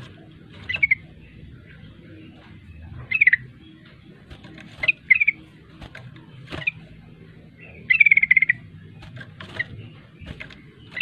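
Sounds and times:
bird chattering calls: 3.1s - 5.6s, 6.6s - 8.7s.

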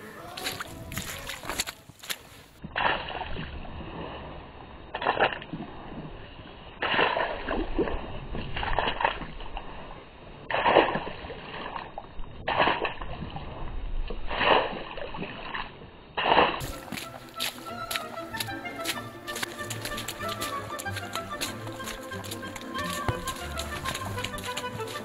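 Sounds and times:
shoes splashing through mud: 0.0s - 9.9s, 10.5s - 25.0s
music with ticking beat: 16.6s - 25.0s.

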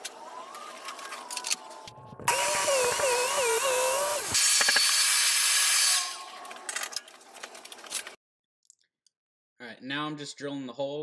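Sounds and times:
track saw cutting mdf: 2.1s - 6.2s.

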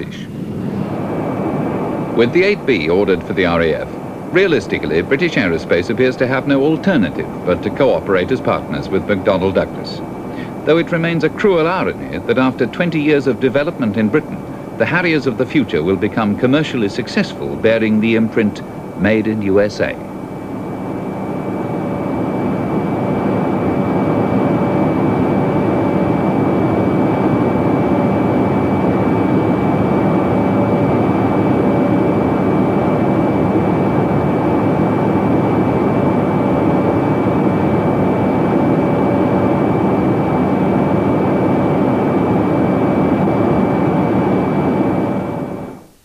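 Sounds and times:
high jet whine: 0.0s - 46.0s
jet engine rushing in flight: 0.0s - 46.0s.

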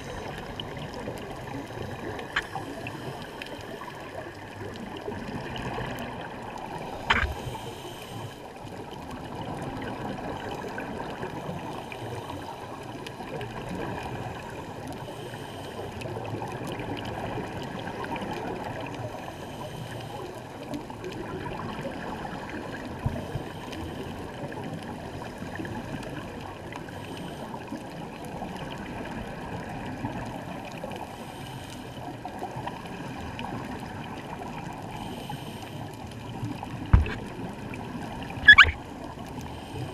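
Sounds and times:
underwater regulator bubbles: 36.2s - 39.4s.

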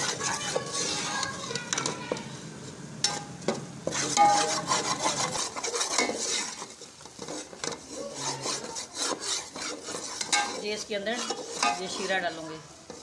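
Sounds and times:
spoon stirring and scraping flour: 0.0s - 2.3s, 3.0s - 13.0s
spoon clinking against pot: 4.2s - 4.6s.

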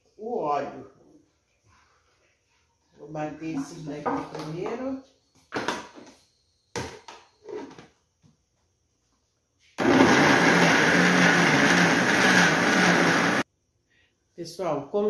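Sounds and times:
blender running: 9.8s - 13.4s.

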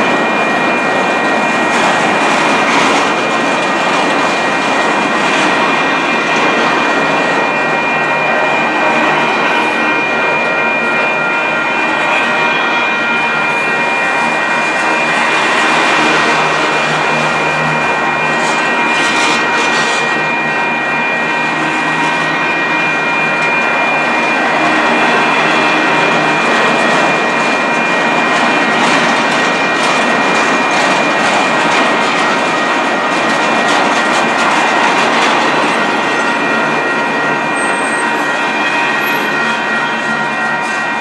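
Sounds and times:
train wheels rumbling on rail: 0.0s - 41.0s
high-pitched wheel squeal: 33.7s - 41.0s.

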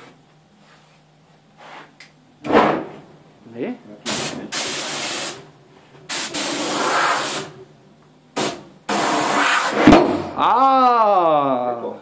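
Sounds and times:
pressurised gas hissing: 4.0s - 5.5s, 6.1s - 7.6s, 8.4s - 9.9s.

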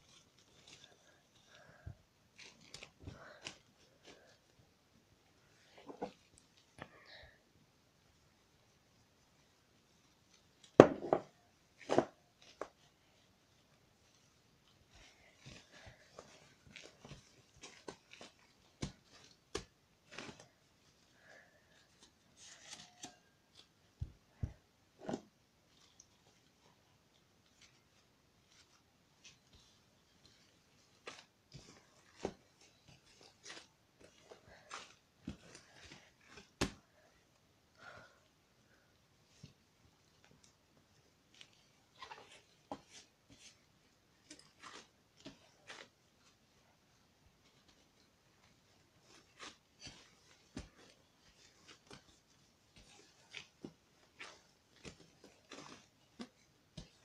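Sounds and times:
hands kneading slime: 0.0s - 57.0s
slime squishing and crackling: 47.4s - 57.0s.

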